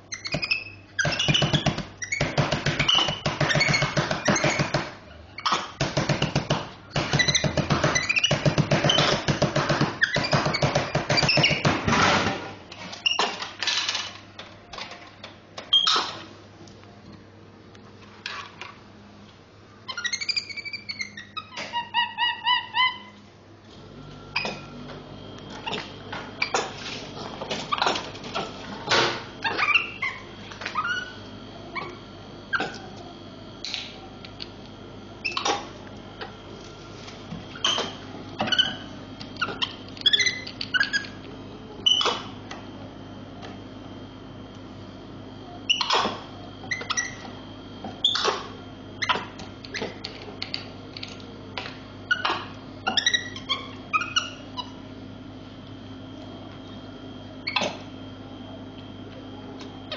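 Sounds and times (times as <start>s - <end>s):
steady low hum: 0.0s - 59.9s
monkey squeaking and chirping: 0.1s - 4.7s, 7.1s - 9.2s, 19.9s - 23.2s, 29.4s - 30.2s, 30.8s - 31.2s, 38.5s - 41.2s, 46.7s - 47.2s, 52.1s - 54.8s.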